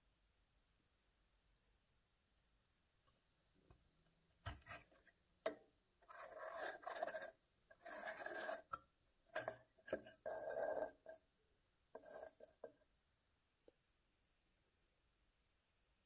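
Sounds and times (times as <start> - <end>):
metal threads scraping: 6.0 - 11.2, 12.0 - 12.7.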